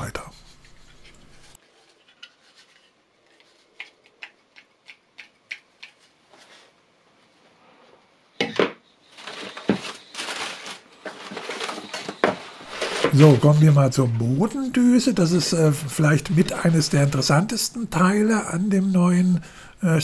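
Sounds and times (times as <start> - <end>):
packaging rustling: 9.1 - 17.6.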